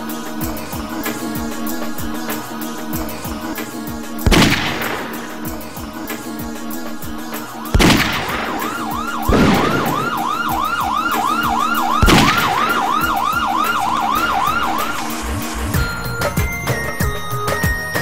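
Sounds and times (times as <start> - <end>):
heavy booms: 4.3 - 5.9, 7.8 - 13.5
yelping siren: 8.4 - 15.8.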